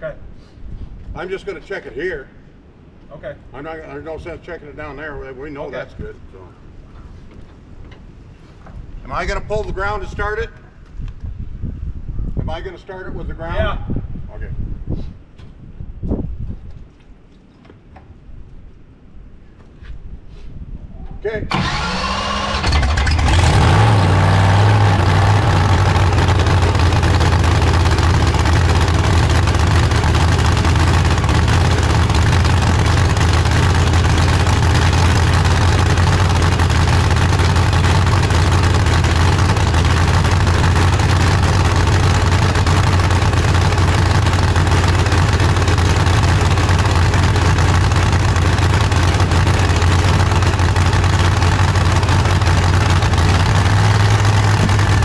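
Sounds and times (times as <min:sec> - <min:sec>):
engine starting and idling loudly: 0:21.5 - 0:55.0.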